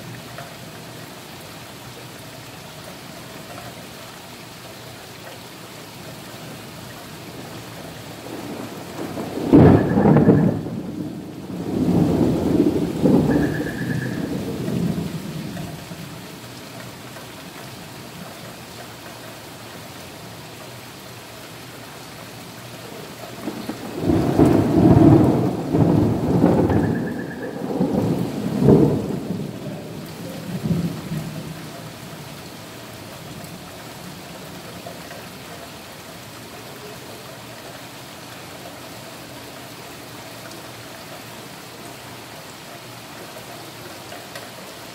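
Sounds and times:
heavy rain on pavement: 0.0 - 44.9
thunder rumbling: 8.1 - 16.2, 23.4 - 32.2.

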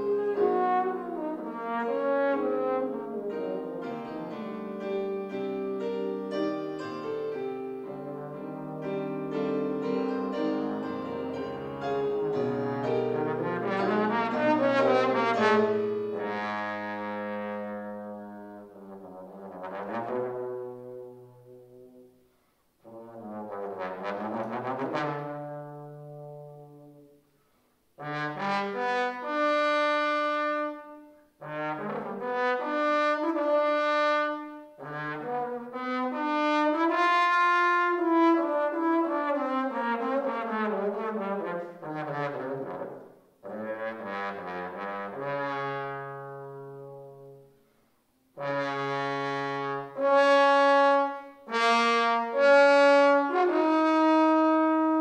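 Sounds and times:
solo trombone playing: 0.0 - 27.2, 28.0 - 47.6, 48.3 - 55.0.

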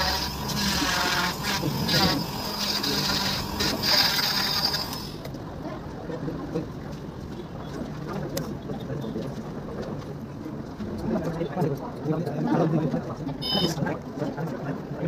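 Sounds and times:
electric saw cutting plaster: 0.0 - 5.0.

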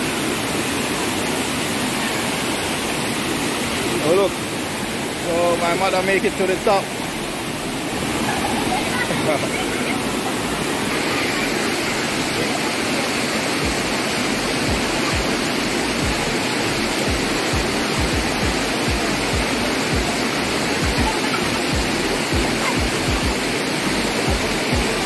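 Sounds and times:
water rushing over rocks: 0.0 - 25.0.

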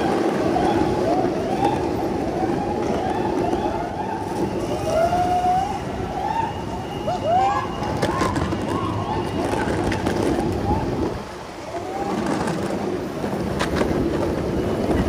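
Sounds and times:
longboard wheels rolling on pavement: 0.0 - 15.0
high wheel squeals: 0.6 - 12.5.

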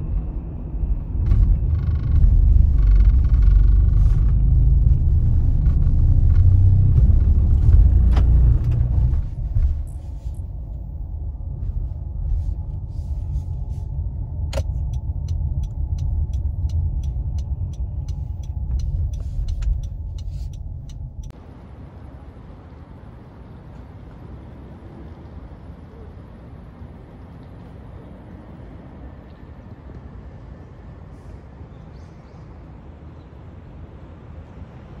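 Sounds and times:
car road and engine rumble: 0.0 - 35.0.

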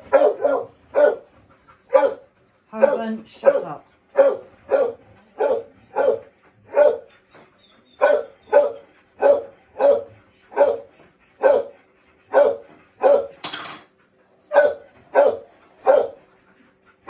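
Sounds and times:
dog barking: 0.0 - 1.3, 1.9 - 7.1, 8.0 - 11.7, 12.3 - 13.4, 14.5 - 16.2.

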